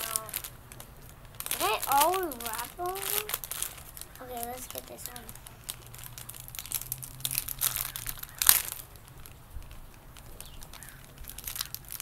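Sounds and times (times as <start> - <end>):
plastic wrapper crinkling: 0.0 - 12.0.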